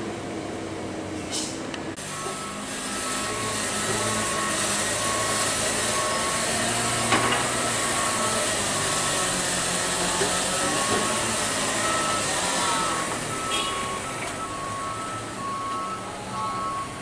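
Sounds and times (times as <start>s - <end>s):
diesel truck engine pulling: 0.0s - 17.0s
short high beeps: 11.8s - 17.0s.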